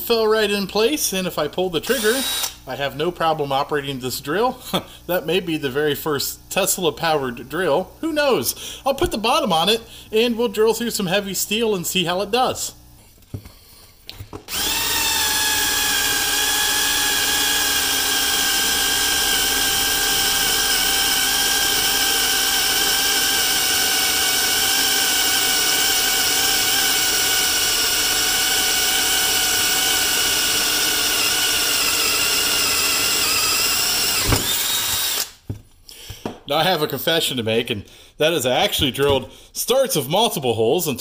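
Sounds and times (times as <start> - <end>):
cordless drill whining into steel: 1.8 - 2.6, 14.5 - 35.4.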